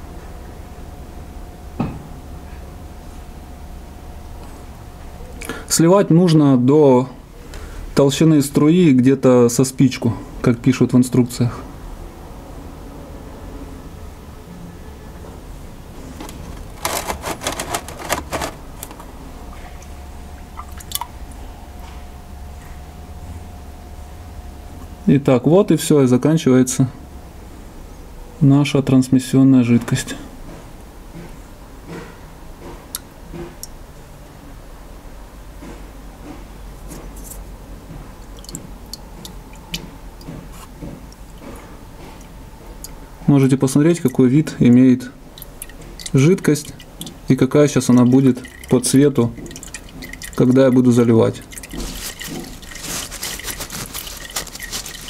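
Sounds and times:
plastic canister clattering: 16.2 - 19.1, 51.6 - 55.0
small ticks and drips: 38.2 - 40.3, 45.3 - 55.0.

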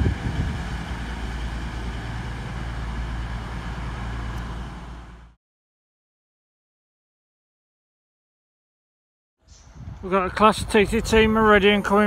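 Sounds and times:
diesel train rumble with hiss: 0.0 - 5.4.

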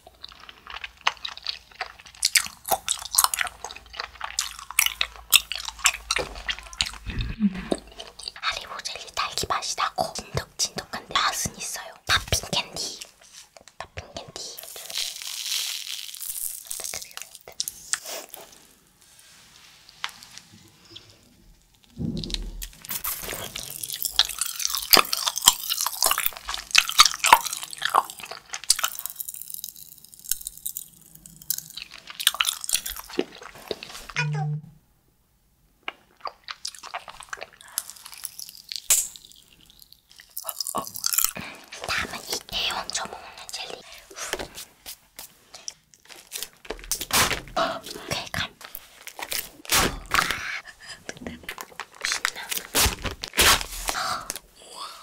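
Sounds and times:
popping candy crackles: 0.0 - 18.8, 21.6 - 34.2, 35.8 - 55.0
candy granules and packet rustling: 7.7 - 20.5, 22.6 - 34.2, 36.0 - 55.0.

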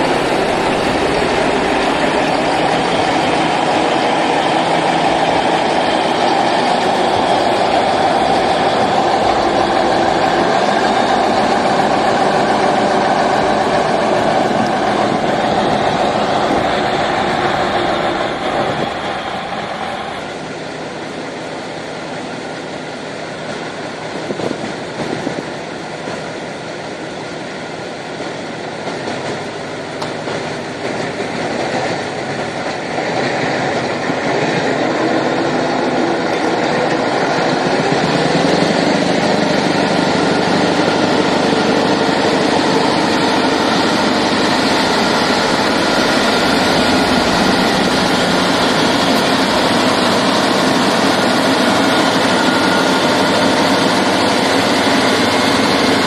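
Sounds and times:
diesel truck engine under load: 33.6 - 56.0.

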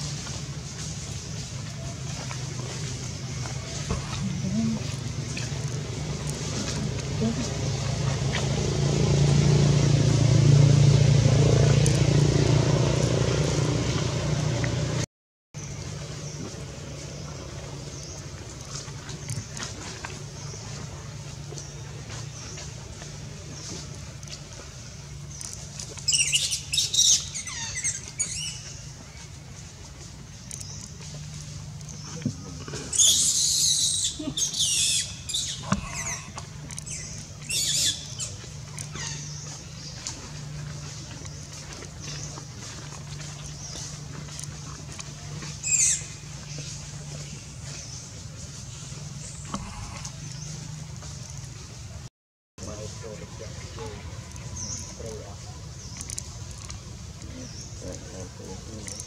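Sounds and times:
motor engine running: 0.0 - 59.0
baby monkey squealing screeches: 32.9 - 36.3, 36.9 - 38.0, 45.6 - 46.0.

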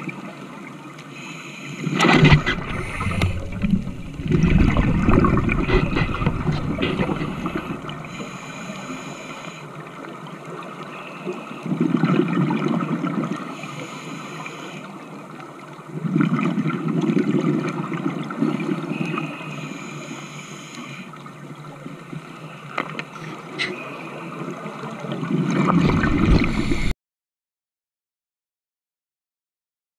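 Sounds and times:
exhaled bubbles underwater: 1.8 - 8.5, 9.2 - 13.6, 15.6 - 19.3, 21.2 - 26.9
regulator hiss: 7.2 - 9.6, 13.6 - 14.9.

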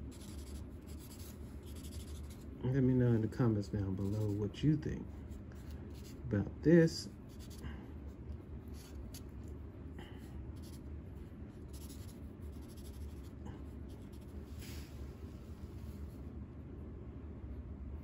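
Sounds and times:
marker scratching on paper: 0.0 - 2.5, 3.8 - 4.4, 5.6 - 6.2, 7.3 - 7.6, 8.6 - 9.5, 10.6 - 10.9, 11.6 - 14.5
low steady hum: 0.0 - 18.0.

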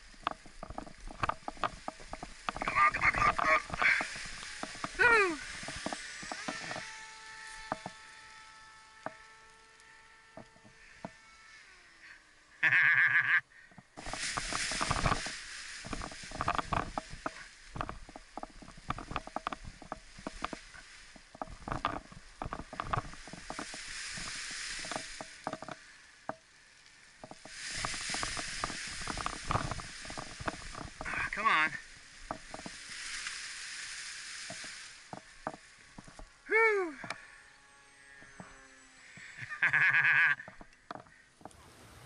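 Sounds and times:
paraglider canopy rustling and snapping: 0.0 - 11.0, 13.8 - 25.9, 27.2 - 36.4.

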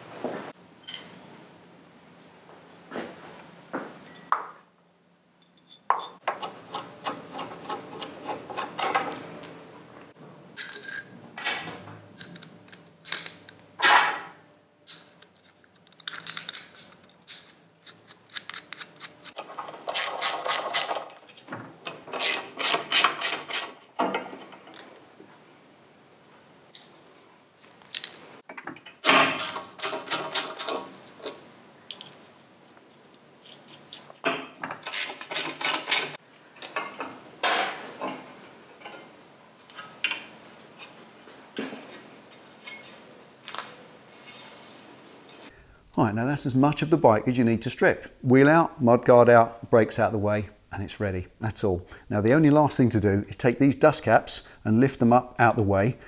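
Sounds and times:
steel parts clinking: 10.6 - 11.2, 12.2 - 13.7, 14.8 - 21.4.

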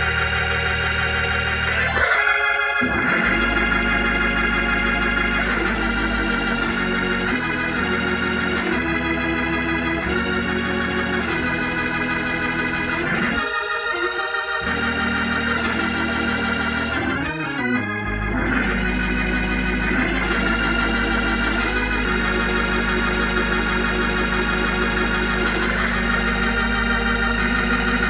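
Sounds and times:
organ chords through rotary speaker: 0.0 - 28.0
deep bass note: 2.8 - 13.4.

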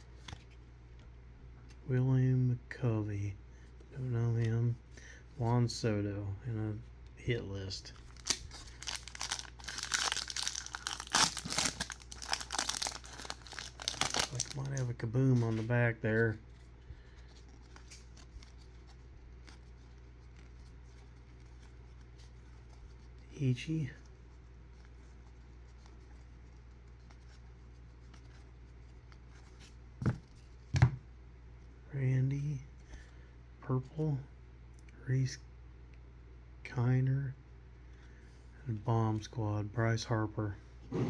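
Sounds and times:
steady low hum: 0.0 - 41.0
foil wrapper crinkling: 7.9 - 15.0.

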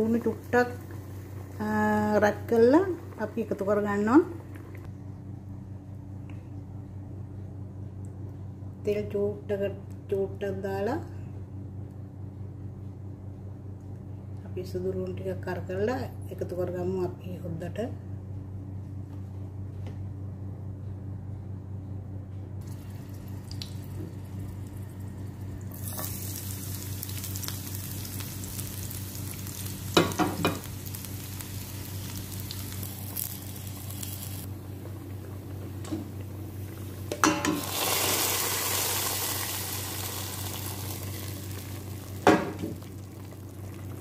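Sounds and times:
garlic sizzling in hot oil: 22.6 - 34.9, 35.6 - 44.0.

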